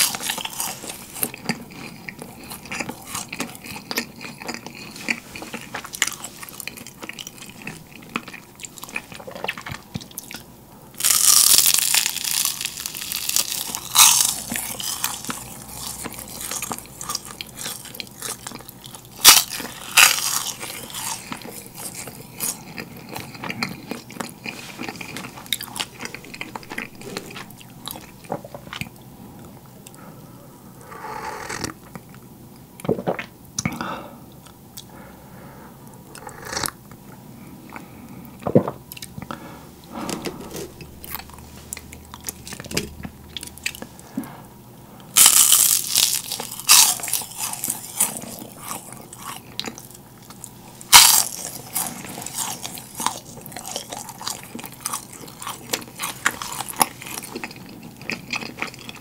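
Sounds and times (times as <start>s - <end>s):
crackly chewing: 0.0s - 30.1s, 36.0s - 44.4s, 45.0s - 59.0s
crunchy cracker bites: 11.0s - 24.2s, 45.2s - 59.0s.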